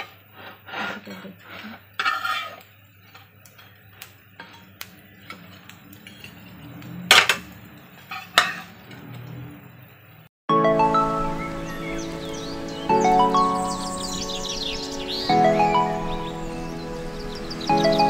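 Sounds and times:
metal spatula scraping griddle pan: 0:00.0 - 0:03.8, 0:04.4 - 0:09.5.

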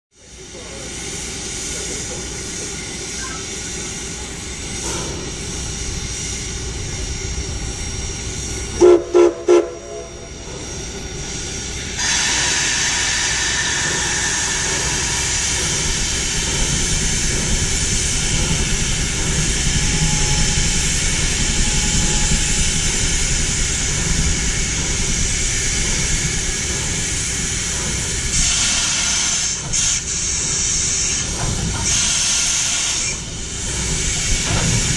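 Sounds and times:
steam locomotive hissing: 0:00.2 - 0:34.9
steam whistle blasts: 0:08.8 - 0:10.2.

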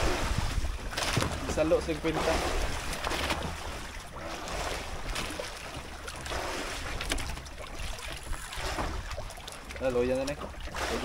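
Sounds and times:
wind on microphone: 0:00.0 - 0:02.9
sea water washing around boat: 0:00.0 - 0:11.0.

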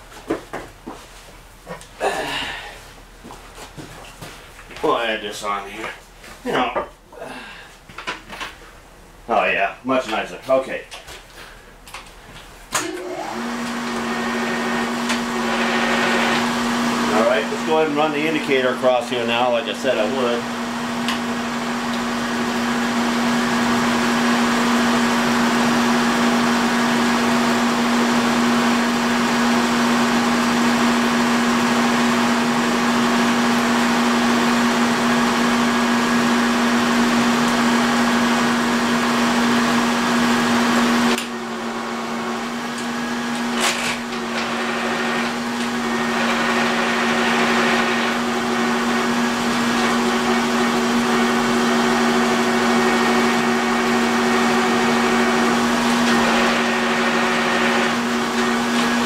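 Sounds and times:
machine running noise: 0:12.7 - 0:59.0
electric motor humming: 0:12.8 - 0:19.4, 0:20.4 - 0:59.0.

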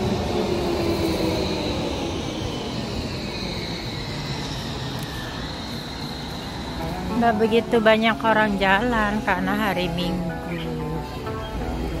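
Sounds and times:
electric tram motor whine: 0:00.0 - 0:12.0
tram rumbling on rails: 0:00.0 - 0:12.0.

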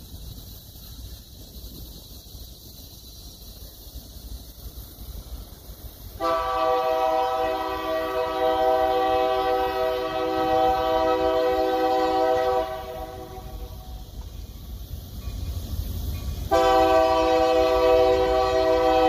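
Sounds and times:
low train rumble: 0:00.0 - 0:19.0
train air horn chord: 0:06.2 - 0:13.6, 0:16.5 - 0:19.0.

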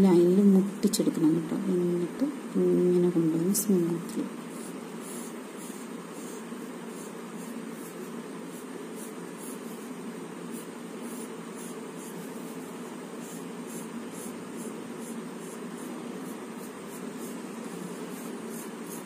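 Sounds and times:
steady background hiss: 0:00.0 - 0:19.0
pencil scratching on paper: 0:04.2 - 0:19.0.

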